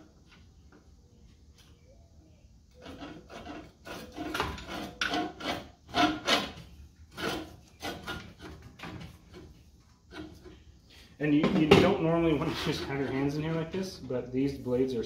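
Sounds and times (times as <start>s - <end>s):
reel mower blades scraping: 2.7s - 10.6s, 12.1s - 13.9s.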